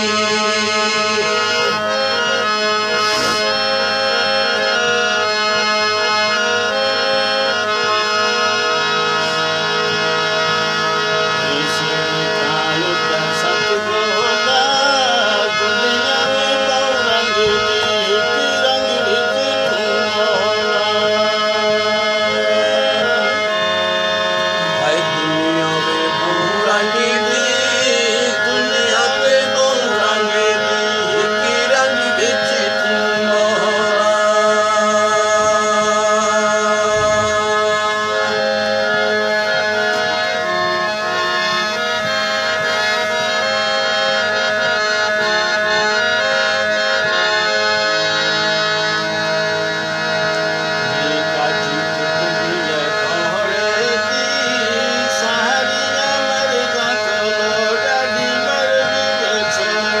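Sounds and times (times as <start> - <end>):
harmonium playing: 0.0 - 60.0
wordless voice: 11.4 - 20.8, 50.8 - 60.0.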